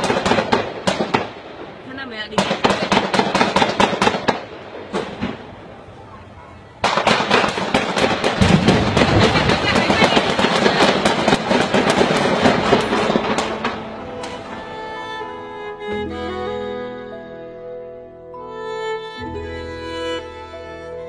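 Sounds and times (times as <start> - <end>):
rapid gunfire: 0.0 - 1.4, 2.3 - 5.4, 6.8 - 13.9.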